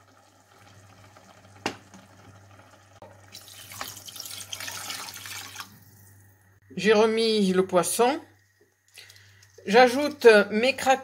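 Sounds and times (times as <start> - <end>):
water pouring into pot: 0.0 - 6.4.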